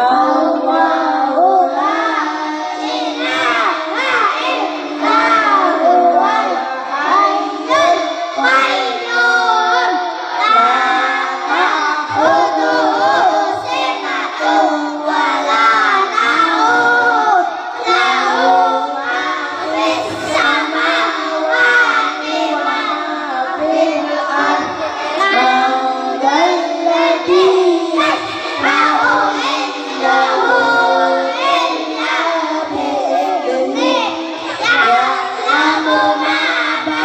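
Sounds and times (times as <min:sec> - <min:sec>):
boys chanting through microphones: 0:00.0 - 0:37.0.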